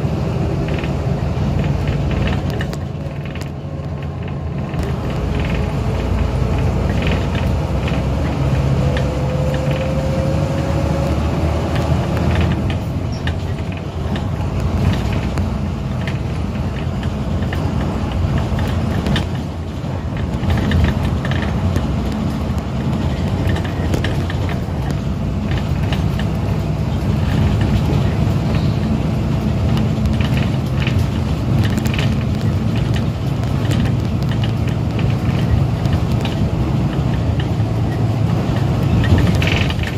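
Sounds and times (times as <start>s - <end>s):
vehicle engine and road noise: 0.0s - 39.9s.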